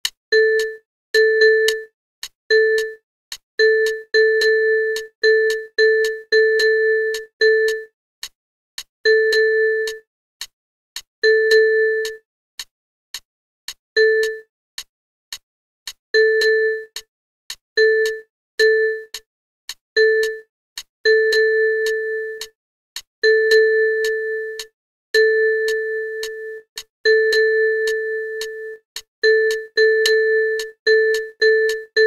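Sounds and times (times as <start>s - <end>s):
metronome click: 0.5s - 0.8s, 1.6s - 1.9s, 2.7s - 8.4s, 9.2s - 12.2s, 13.7s - 14.4s, 18.0s - 18.2s, 20.2s - 20.4s, 21.3s - 22.6s, 23.4s - 24.7s, 25.6s - 32.0s.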